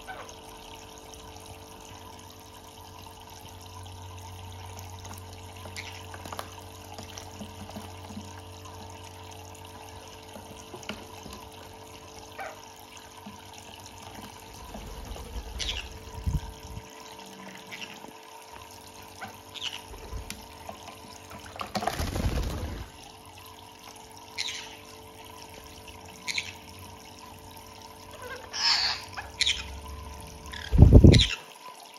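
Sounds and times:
faucet trickling into water: 0.0s - 31.9s
birds splashing and flapping: 5.0s - 9.3s, 13.2s - 18.2s, 18.8s - 23.2s.

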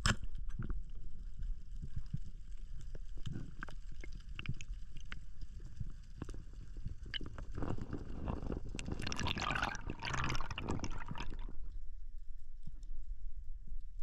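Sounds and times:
water bubbling underwater: 3.3s - 11.7s.

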